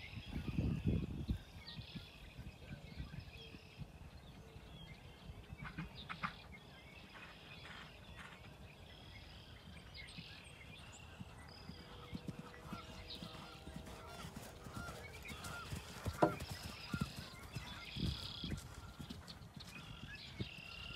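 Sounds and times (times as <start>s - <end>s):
wind on microphone: 0.0s - 6.0s, 14.6s - 20.9s
small birds chirping: 0.2s - 20.9s.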